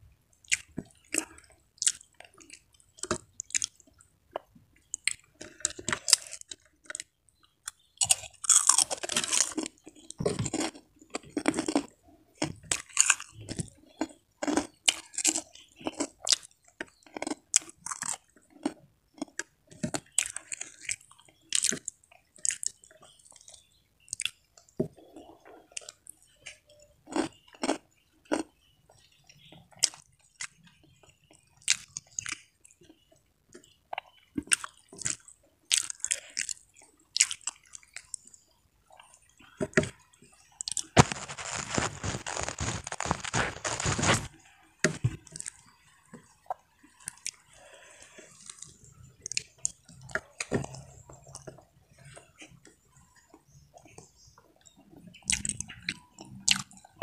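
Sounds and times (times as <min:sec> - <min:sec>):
person chewing and crunching: 0:00.4 - 0:54.5, 0:55.2 - 0:57.0
loud dense crackling: 0:41.0 - 0:44.3.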